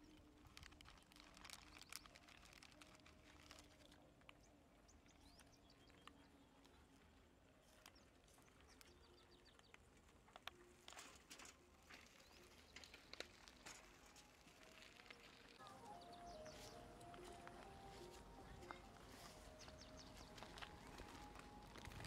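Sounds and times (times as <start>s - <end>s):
faint clicks and rustles: 0.0s - 22.0s
faint bird chirps: 14.8s - 22.0s.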